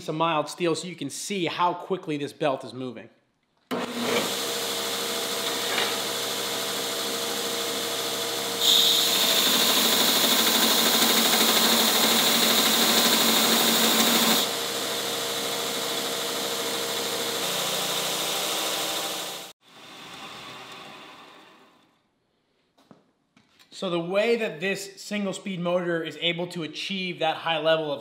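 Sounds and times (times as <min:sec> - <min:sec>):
belt grinder motor running: 0:03.7 - 0:21.8
steel grinding on belt: 0:05.3 - 0:06.7.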